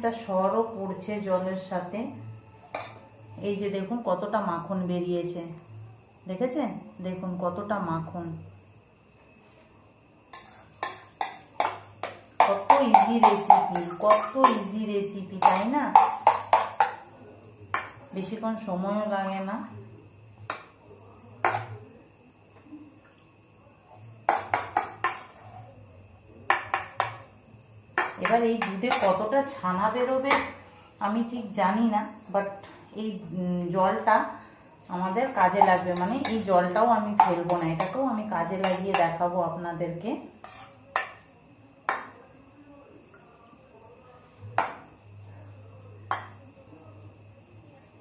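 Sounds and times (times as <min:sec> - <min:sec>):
spoon scraping butter: 0:10.3 - 0:14.7, 0:24.3 - 0:25.8, 0:37.2 - 0:39.2, 0:40.3 - 0:41.2
spoon knocking on steel bowl: 0:10.4 - 0:14.8, 0:15.4 - 0:17.0, 0:17.7 - 0:18.0, 0:21.4 - 0:21.8, 0:24.3 - 0:25.4, 0:26.5 - 0:27.3, 0:28.0 - 0:29.3, 0:35.2 - 0:36.5, 0:37.1 - 0:39.2, 0:46.1 - 0:46.4.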